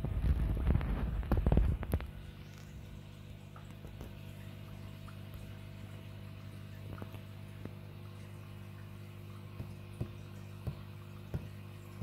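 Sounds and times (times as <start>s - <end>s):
microphone buffeting rumble: 0.0s - 2.3s
aquarium equipment hum: 0.0s - 12.0s
water drips: 1.8s - 12.0s.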